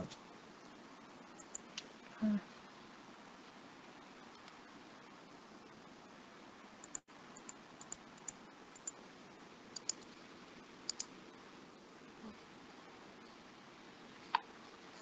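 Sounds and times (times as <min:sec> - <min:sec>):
faint room hiss: 0:00.0 - 0:15.0
mouse and keyboard clicks: 0:09.8 - 0:10.1, 0:10.9 - 0:11.1.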